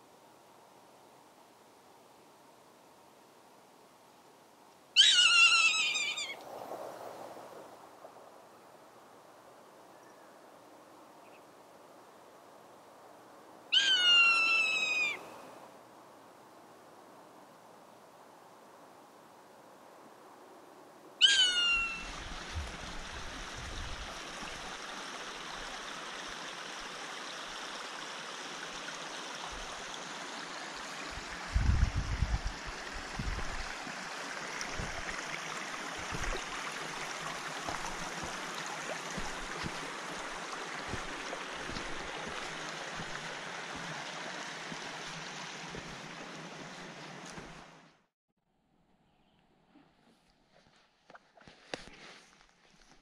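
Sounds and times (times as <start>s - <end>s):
running water rushing: 21.2s - 48.0s.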